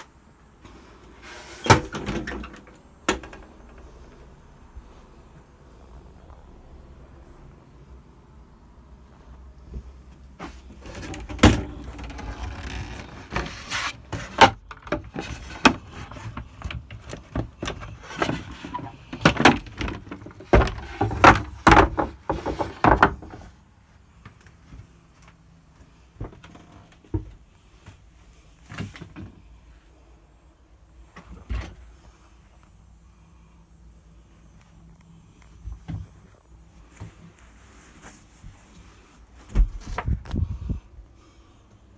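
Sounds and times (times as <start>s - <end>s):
wooden boards knocking and scraping: 10.4s - 23.5s.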